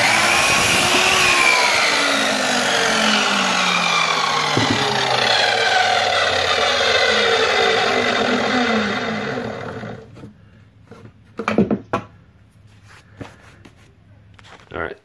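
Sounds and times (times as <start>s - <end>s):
miter saw motor winding down: 0.0s - 10.1s
knocks of board handled: 4.6s - 5.0s.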